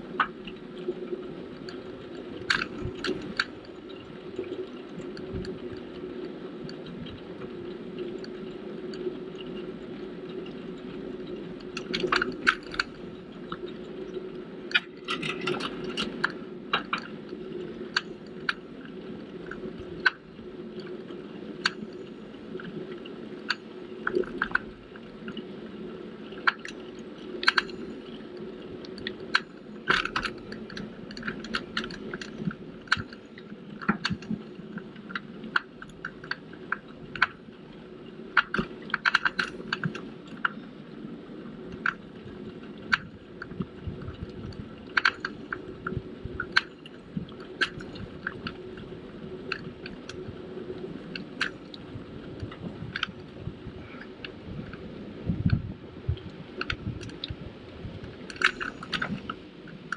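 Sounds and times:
bicycle tyres rolling rumble: 0:00.0 - 0:59.9
bike clicks and rattles: 0:01.6 - 0:04.2, 0:08.0 - 0:13.8, 0:14.7 - 0:18.7, 0:28.9 - 0:37.4, 0:38.4 - 0:40.6, 0:42.8 - 0:48.9, 0:58.2 - 0:59.9.

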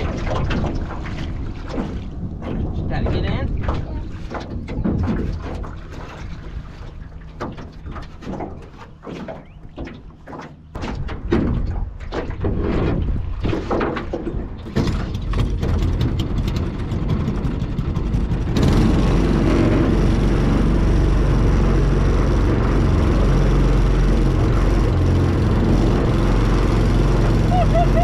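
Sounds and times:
knocks and clatter in metal boat: 0:00.0 - 0:20.6
small gas engine running: 0:15.9 - 0:28.0.

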